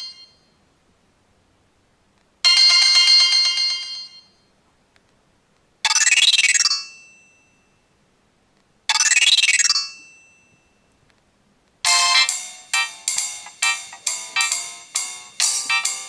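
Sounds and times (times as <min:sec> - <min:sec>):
polyphonic ringtone from phone speaker: 0:08.9 - 0:10.8, 0:11.9 - 0:16.0.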